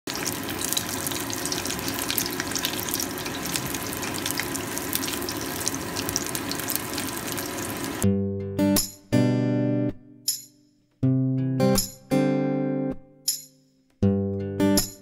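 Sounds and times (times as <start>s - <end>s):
food deep-frying in hot oil: 0.0s - 8.0s.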